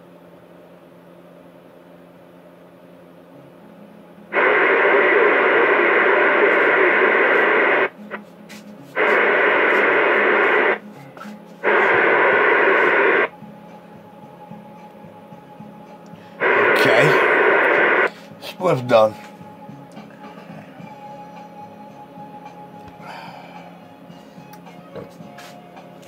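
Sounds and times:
faint steady hum: 0.0 - 26.0
radio static hiss: 4.3 - 13.6, 15.6 - 21.2, 24.4 - 26.0.

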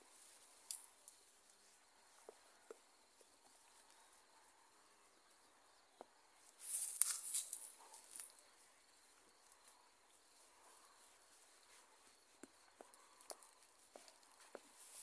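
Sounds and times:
tall grass rustling: 0.0 - 2.3, 6.3 - 12.4.

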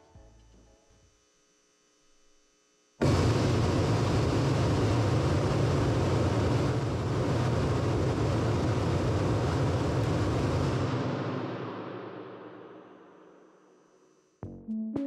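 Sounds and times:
loud rushing test noise: 3.0 - 13.6.

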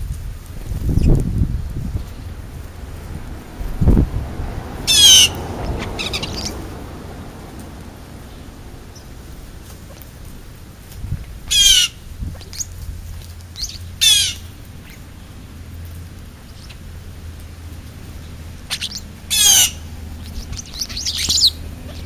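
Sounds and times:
birds squawking harshly: 4.8 - 6.8, 11.4 - 12.8, 13.5 - 15.4, 16.4 - 17.0, 18.2 - 22.0
soft bird chirps: 13.5 - 15.3, 16.4 - 16.9, 18.2 - 22.0.

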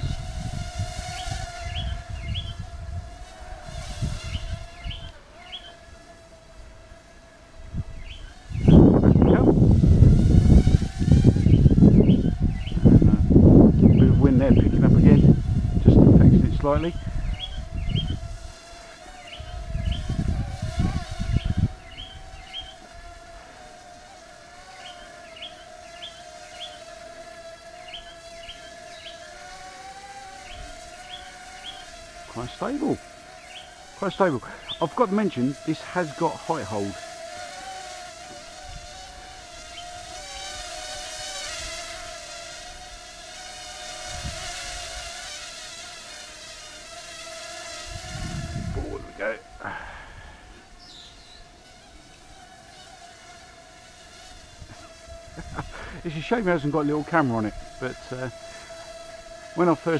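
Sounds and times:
wind buffeting microphone: 0.0 - 5.2, 7.6 - 18.6, 19.3 - 23.4, 43.9 - 45.1, 47.7 - 50.5
birds chirping: 0.0 - 44.5, 47.0 - 59.9
quadcopter propellers whining: 0.0 - 59.9
bird chirping: 1.2 - 2.7, 4.2 - 5.8, 8.0 - 9.5, 11.4 - 13.0, 16.8 - 18.3, 19.1 - 20.3, 21.0 - 22.9, 24.7 - 26.9, 27.7 - 29.3, 30.4 - 32.5, 33.4 - 35.4, 50.8 - 51.5.

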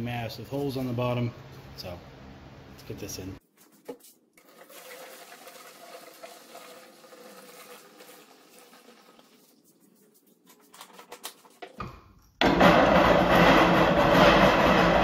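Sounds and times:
fuel pouring through funnel: 4.4 - 9.7.

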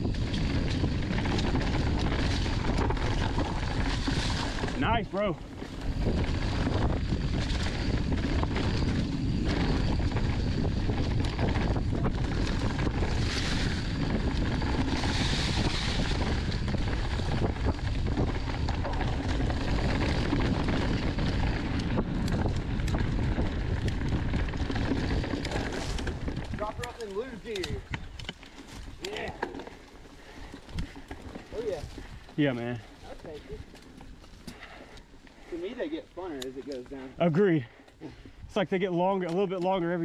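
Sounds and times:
wind on microphone: 0.0 - 28.2
bike clicks and rattles: 0.0 - 40.0
bike tyres rolling over dirt: 0.0 - 40.0.

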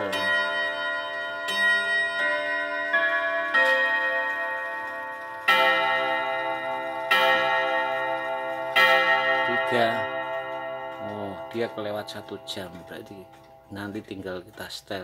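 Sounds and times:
clock chime on gong rods: 0.0 - 15.0
heavy clock hour strikes: 0.0 - 15.0.

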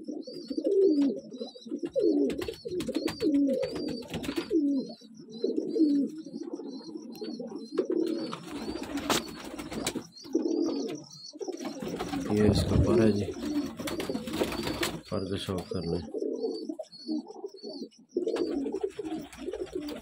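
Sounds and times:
pigeons cooing: 0.0 - 20.0
thin high chirp: 8.2 - 15.8.

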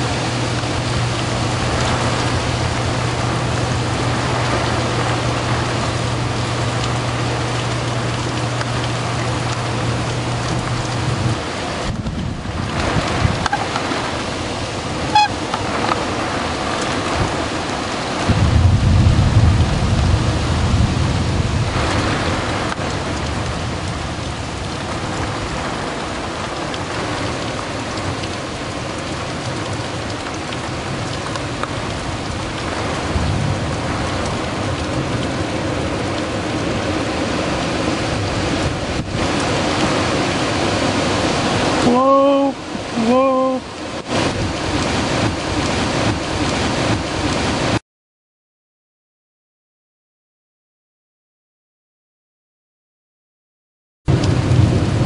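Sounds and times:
thunder rumble: 0.0 - 41.9, 43.6 - 47.8, 54.1 - 55.0
heavy rain: 0.0 - 47.8, 54.1 - 55.0
strong wind: 0.0 - 47.8, 54.1 - 55.0.

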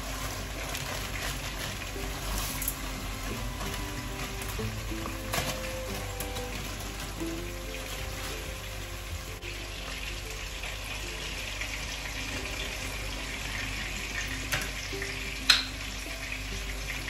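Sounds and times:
food sizzling in pans: 0.0 - 17.0.

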